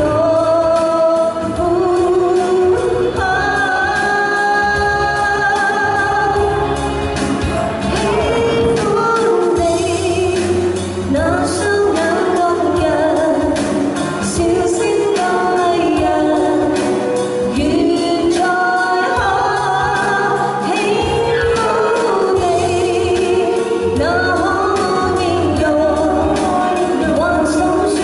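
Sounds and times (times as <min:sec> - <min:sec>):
keyboard: 0:00.0 - 0:28.0
woman singing pop song: 0:00.0 - 0:28.0.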